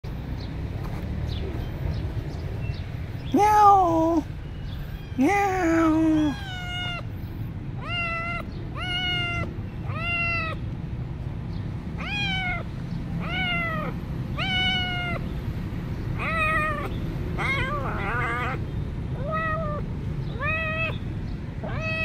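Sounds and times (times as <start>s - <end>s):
kitten meowing: 5.3s - 7.1s, 7.8s - 10.6s, 12.0s - 15.3s, 16.2s - 22.0s.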